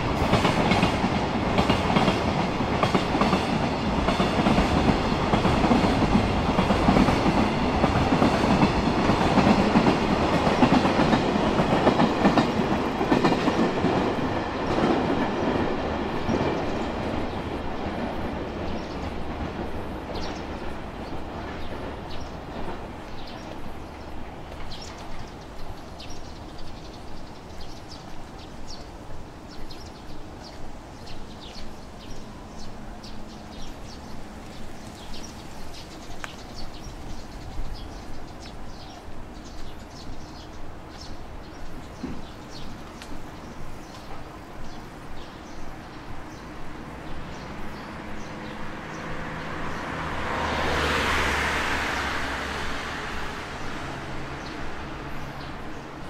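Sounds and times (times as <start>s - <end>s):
train wheels clickety-clack: 0.0s - 56.0s
footsteps on pavement: 17.8s - 51.4s.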